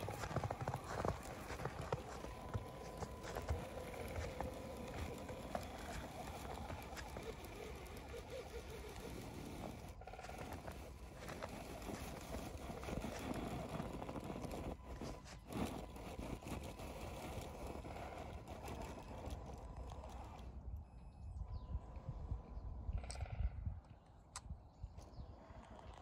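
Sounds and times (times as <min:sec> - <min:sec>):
tyres crunching snow: 0:00.0 - 0:20.5
toy car electric motor and gears: 0:00.0 - 0:20.8.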